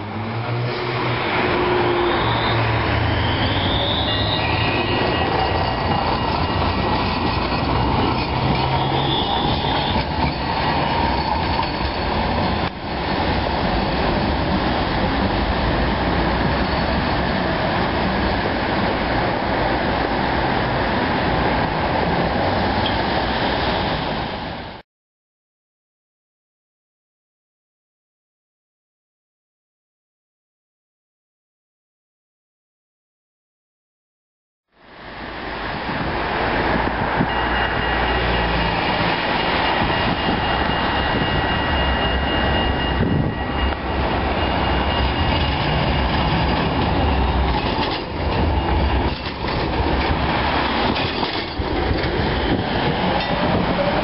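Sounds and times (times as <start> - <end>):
wheels rumbling on rails: 0.0 - 24.8, 34.8 - 54.0
high wheel squeal: 1.2 - 12.7, 37.0 - 54.0.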